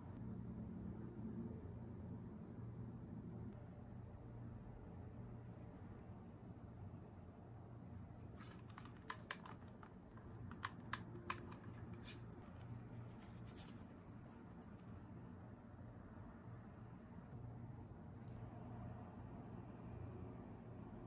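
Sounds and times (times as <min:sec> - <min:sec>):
resin pieces clicking: 0:08.4 - 0:14.8.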